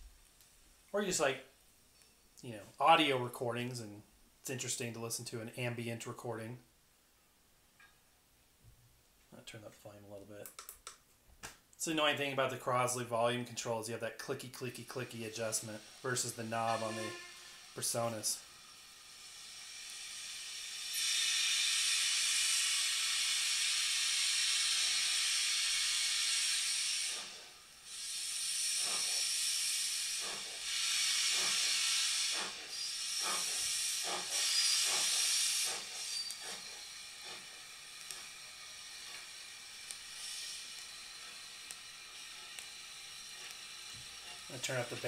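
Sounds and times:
steam hissing: 0:13.6 - 0:45.0
steam locomotive chuffing: 0:15.1 - 0:45.0.

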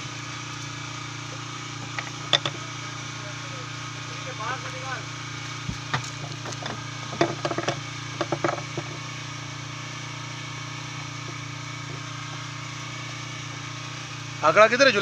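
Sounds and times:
boat engine idling: 0:00.0 - 0:15.0
light clicks and knocks: 0:05.7 - 0:09.0.

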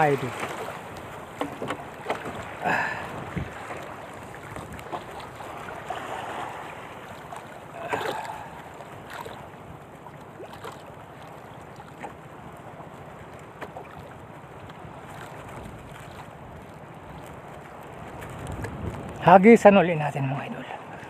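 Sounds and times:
wind buffeting microphone: 0:00.0 - 0:07.1, 0:14.7 - 0:19.8
water lapping against canoe: 0:00.0 - 0:19.7.

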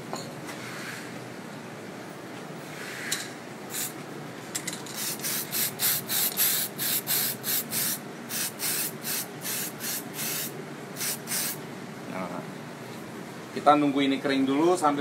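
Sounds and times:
spray paint can hissing: 0:03.7 - 0:04.0, 0:05.0 - 0:11.6.

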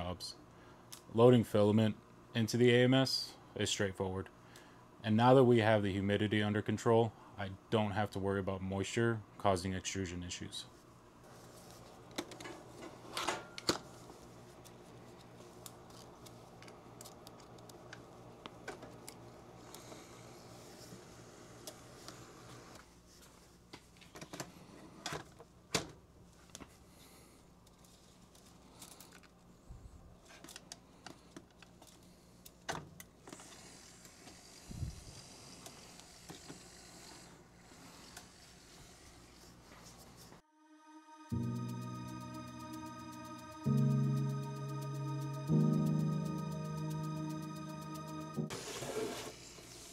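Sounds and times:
small motor whirring: 0:33.3 - 0:39.3
steady low hum: 0:41.4 - 0:48.6.

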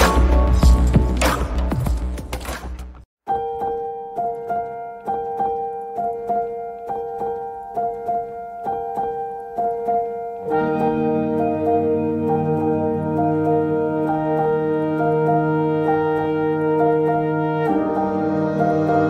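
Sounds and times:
keyboard repeated notes: 0:03.3 - 0:19.0
lower musical accompaniment: 0:03.3 - 0:19.0.

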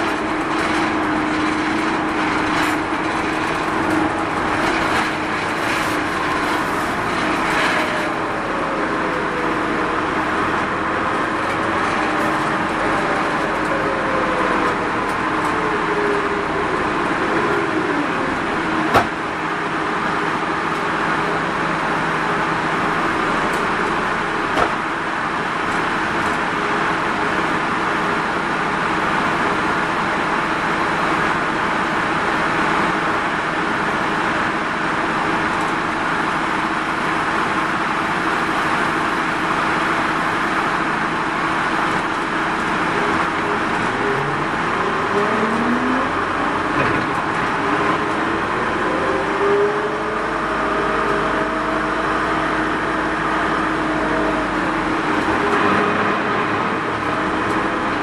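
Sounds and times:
minibus diesel engine running: 0:00.0 - 0:58.0
road noise: 0:00.0 - 0:58.0.

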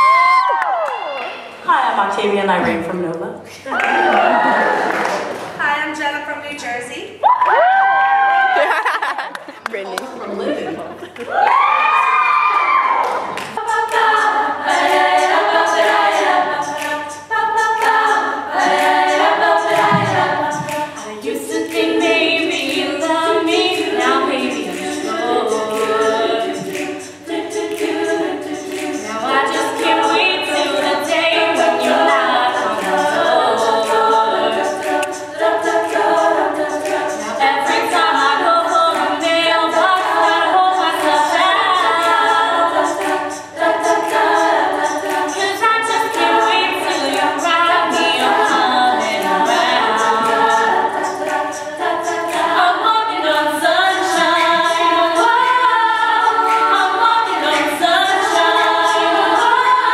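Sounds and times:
women singing a cappella: 0:11.0 - 0:59.9
steady clicking beat: 0:13.2 - 0:59.9.

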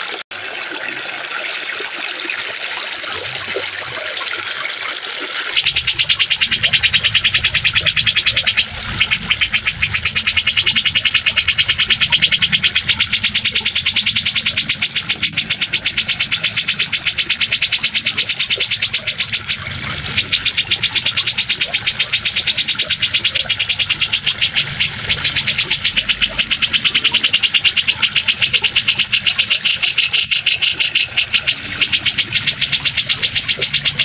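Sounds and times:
bird chattering trill: 0:05.5 - 0:34.0.

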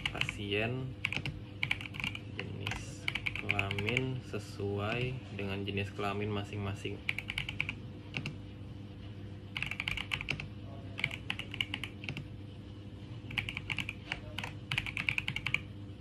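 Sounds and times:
keyboard typing clicks: 0:01.0 - 0:04.0, 0:07.1 - 0:08.4, 0:09.6 - 0:12.3, 0:13.3 - 0:15.7.

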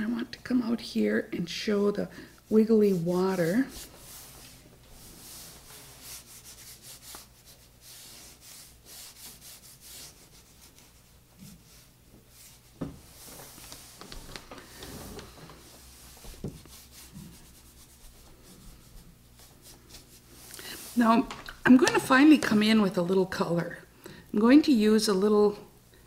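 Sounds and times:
brush rubbing on paper: 0:02.7 - 0:21.2
soft knocks: 0:16.2 - 0:16.7.

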